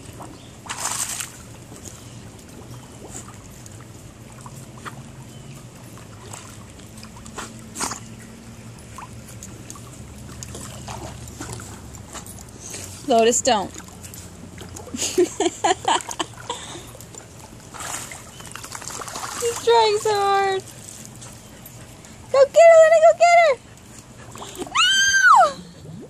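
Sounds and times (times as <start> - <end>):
dogs splashing in pool: 0.0 - 26.0
water sloshing: 0.0 - 26.0
sharp water slaps: 0.6 - 1.4, 17.7 - 19.6.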